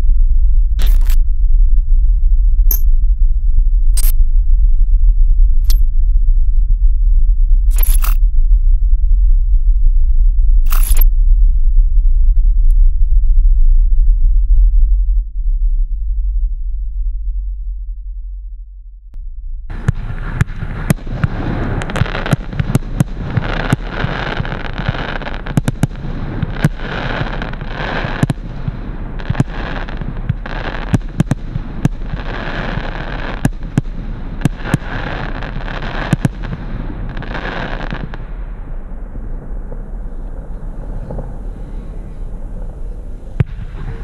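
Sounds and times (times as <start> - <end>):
firework hiss: 19.7 - 38.5
firework bangs: 19.7 - 42.0.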